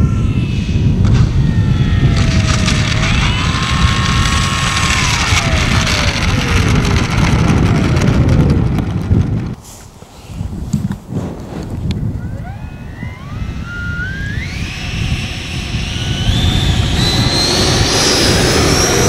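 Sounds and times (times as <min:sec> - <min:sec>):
model plane motor whine: 0:00.0 - 0:09.6, 0:12.0 - 0:19.0
steady low rumble: 0:00.0 - 0:19.0.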